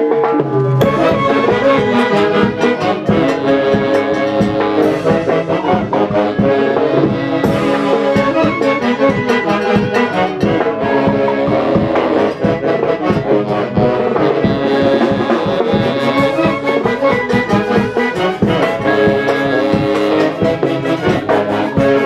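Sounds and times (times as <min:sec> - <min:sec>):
brass band music: 0:00.0 - 0:22.0.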